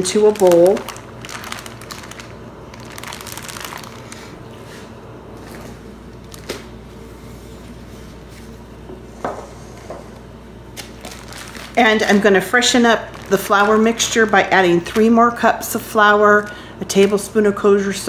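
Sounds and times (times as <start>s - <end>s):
plastic bag crinkling: 0.0s - 4.4s, 6.2s - 6.7s, 10.8s - 17.5s.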